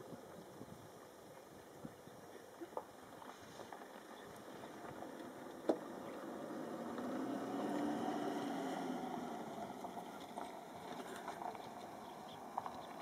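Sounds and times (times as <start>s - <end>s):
vehicle engine driving past: 4.3s - 13.0s.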